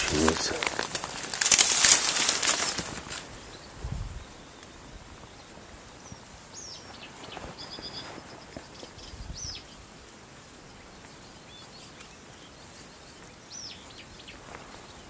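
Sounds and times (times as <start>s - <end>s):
faint open air hiss: 0.0s - 15.0s
small birds whistling: 6.1s - 9.8s.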